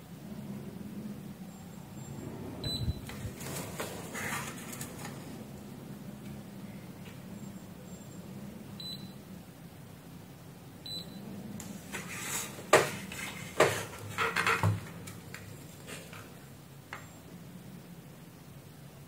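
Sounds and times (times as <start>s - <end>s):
multimeter beeps: 2.6s - 3.0s, 8.8s - 9.2s, 10.9s - 11.2s.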